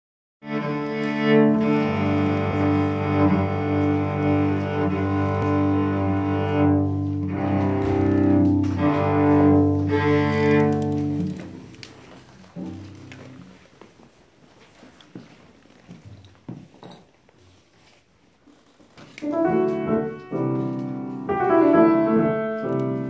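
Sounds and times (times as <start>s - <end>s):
cello bowed sustained notes: 0.4s - 11.9s.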